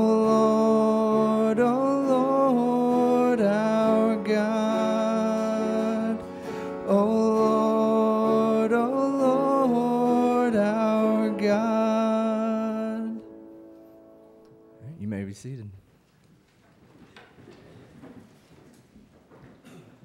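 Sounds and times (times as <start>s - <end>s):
worship band music with guitar: 0.0s - 14.8s.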